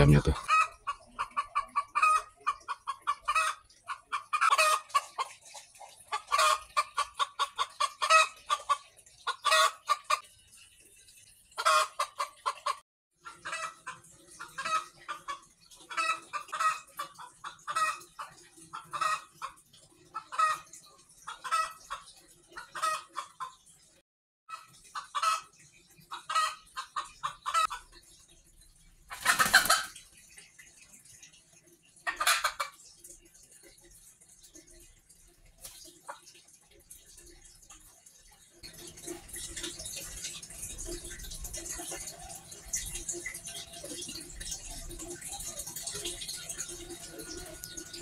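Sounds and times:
hen cackling: 0.0s - 5.4s, 6.1s - 10.2s, 11.6s - 19.6s, 21.3s - 23.6s, 26.1s - 27.9s, 29.1s - 30.0s, 32.0s - 32.8s.

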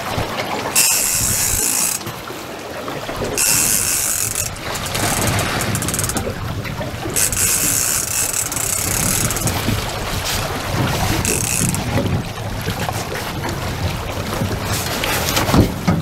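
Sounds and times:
fishing reel ticking: 0.7s - 2.1s, 3.4s - 6.4s, 7.0s - 9.8s, 11.0s - 12.1s
wind noise on microphone: 3.2s - 16.0s.

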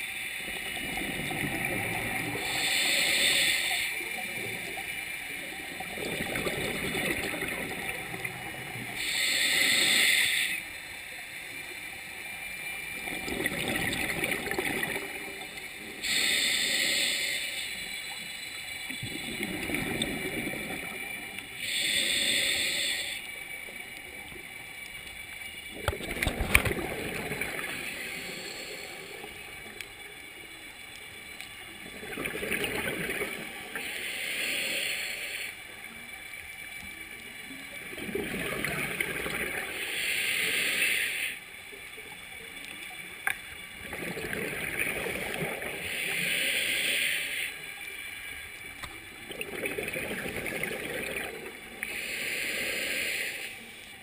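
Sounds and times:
exhaled bubbles gurgling: 0.0s - 10.4s, 11.9s - 31.0s, 31.6s - 41.2s, 41.8s - 53.7s
regulator hiss on inhale: 2.2s - 5.4s, 8.8s - 12.6s, 15.5s - 19.0s, 20.8s - 25.3s, 27.4s - 31.6s, 33.5s - 37.7s, 39.6s - 41.8s, 45.3s - 48.8s, 51.7s - 54.0s.

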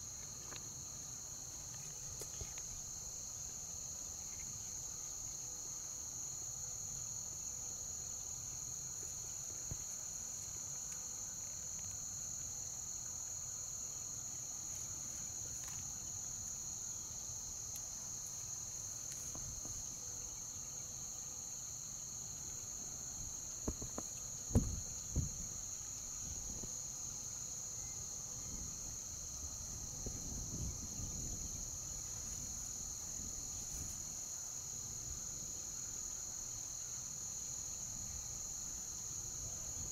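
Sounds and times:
high-pitched insect chorus: 0.0s - 39.9s
low knocks: 23.6s - 25.4s.

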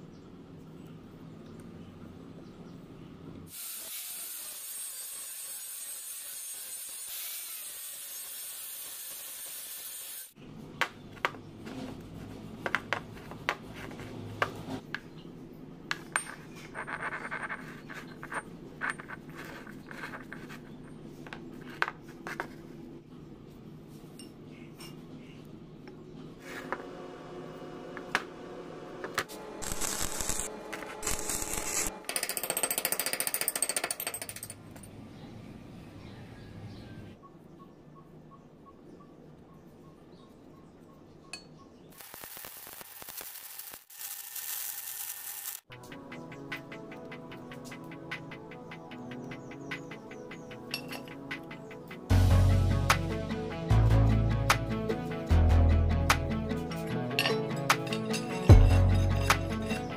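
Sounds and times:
metal tools clinking on workbench: 50.7s - 51.4s, 56.7s - 59.9s.

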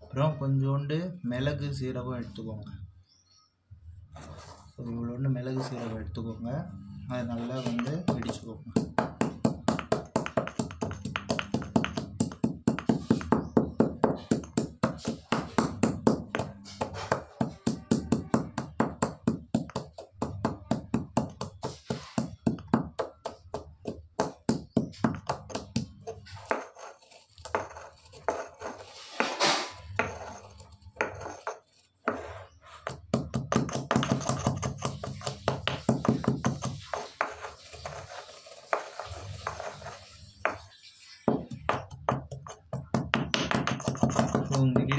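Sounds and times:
stone pestle pounding in mortar: 7.5s - 26.7s, 32.9s - 37.4s, 41.3s - 44.9s.

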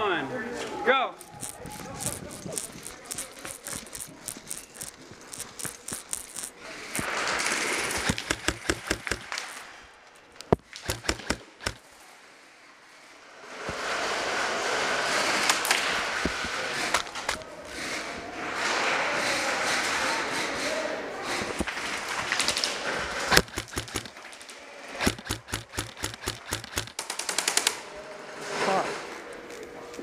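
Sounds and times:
airsoft guns firing: 4.5s - 9.8s, 10.5s - 11.8s, 23.2s - 24.3s, 25.0s - 27.8s.

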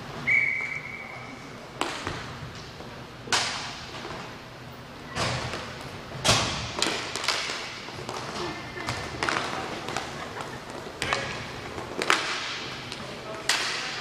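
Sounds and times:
referee's whistle: 0.2s - 1.4s.

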